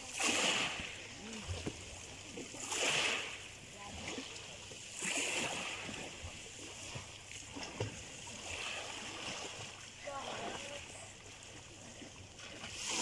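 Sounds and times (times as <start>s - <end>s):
short loud splashes: 0.0s - 1.4s
shallow seawater sloshing: 0.0s - 13.0s.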